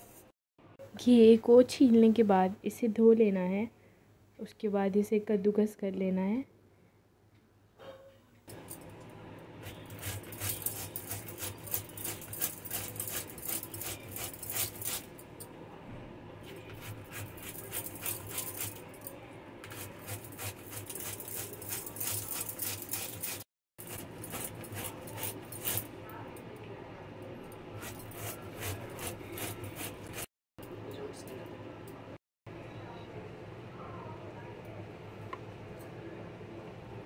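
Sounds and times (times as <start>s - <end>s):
grating on metal grater: 9.9s - 15.1s, 16.8s - 18.8s, 19.7s - 25.9s, 27.8s - 30.3s.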